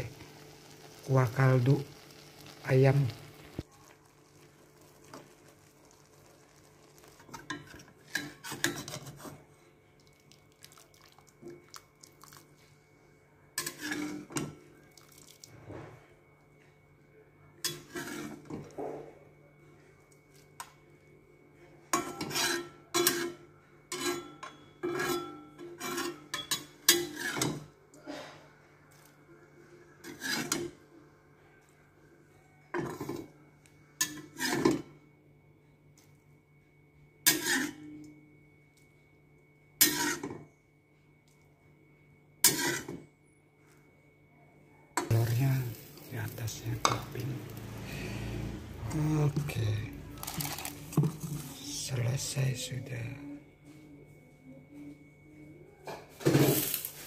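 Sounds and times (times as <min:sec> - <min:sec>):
utensil scraping metal wok: 0:00.0 - 0:03.6, 0:13.6 - 0:14.3, 0:17.7 - 0:18.5, 0:22.2 - 0:23.3, 0:26.9 - 0:27.6, 0:30.0 - 0:30.7, 0:37.3 - 0:37.9, 0:39.8 - 0:40.3, 0:42.4 - 0:43.0, 0:56.3 - 0:57.0.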